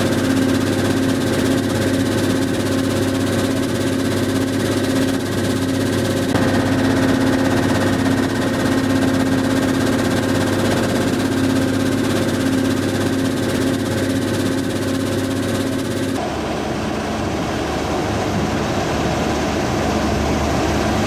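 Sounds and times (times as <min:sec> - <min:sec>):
crushing machinery engine hum: 0:00.0 - 0:19.1.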